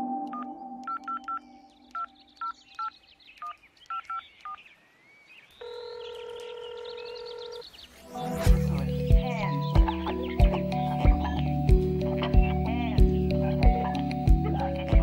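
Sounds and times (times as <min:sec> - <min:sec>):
keypad two-tone beeps: 0:00.0 - 0:04.6
faint warbling chirps: 0:00.0 - 0:10.4
steady telephone tone: 0:05.6 - 0:07.6.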